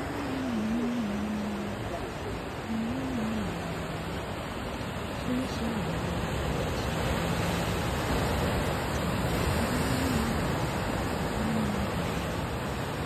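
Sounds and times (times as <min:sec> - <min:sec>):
surf breaking over rocks: 0:05.2 - 0:13.0.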